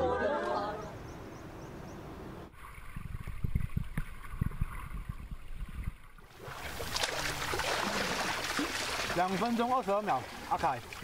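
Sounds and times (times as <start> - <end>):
swimmer splashing water: 5.9 - 11.0.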